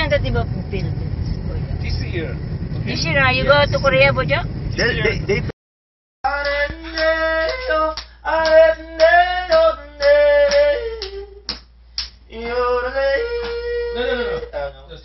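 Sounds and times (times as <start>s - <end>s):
man yodeling: 6.3s - 11.5s, 12.3s - 14.8s.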